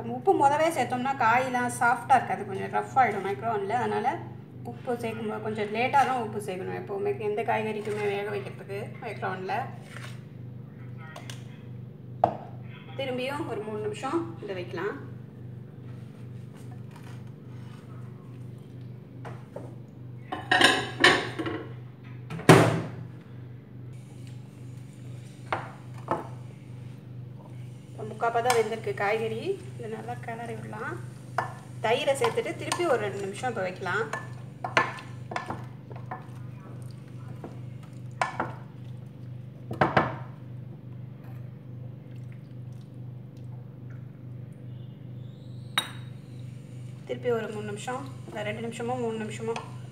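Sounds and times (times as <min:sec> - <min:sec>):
steady low hum: 0:00.0 - 0:49.9
wooden spoon stirring in glass dish: 0:32.2 - 0:39.0.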